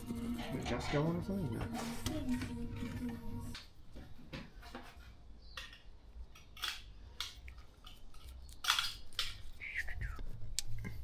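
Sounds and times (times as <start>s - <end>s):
small metal parts clinking: 7.8s - 9.4s.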